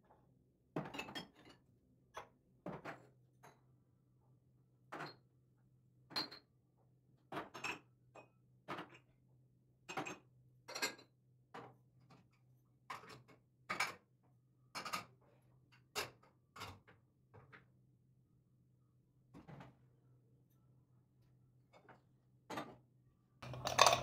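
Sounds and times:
dishes clinking: 23.4s - 24.0s.

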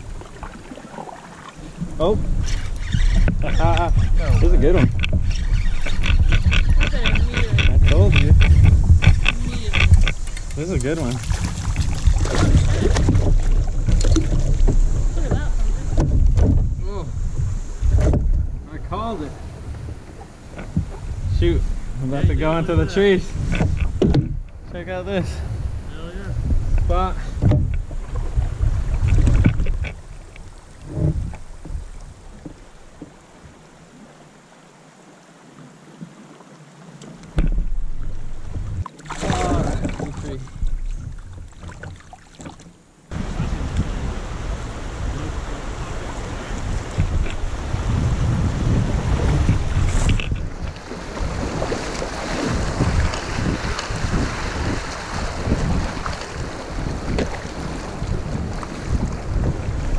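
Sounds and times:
paddle strokes splashing: 0.0s - 24.6s, 26.8s - 59.9s
quiet river water: 0.0s - 59.9s
water rush and bump: 0.0s - 59.9s
wind buffeting microphone: 1.6s - 33.8s, 37.3s - 42.0s, 43.1s - 59.9s
small knocks: 4.6s - 15.4s
thump on kayak: 11.0s - 16.8s, 17.8s - 18.5s, 22.1s - 24.5s, 26.8s - 28.4s, 30.9s - 33.2s, 37.3s - 44.0s, 46.7s - 48.0s, 48.7s - 59.6s.

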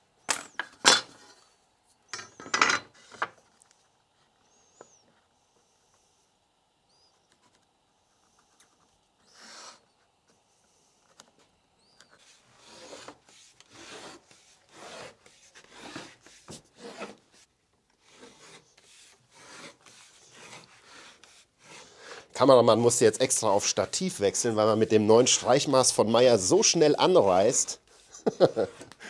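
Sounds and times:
gauge scraping along wood: 11.9s - 29.0s.

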